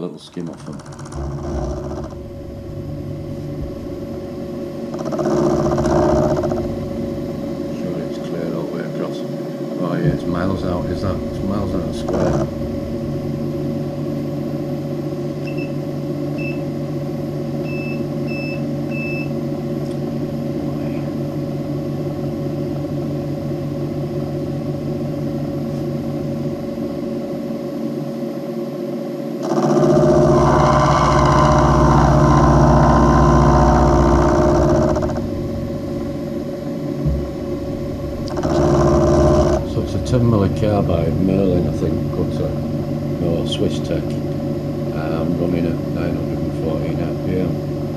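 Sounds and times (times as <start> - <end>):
milling machine running: 0.0 - 27.8, 29.4 - 47.9
cutter milling steel: 29.4 - 35.2, 38.3 - 39.8.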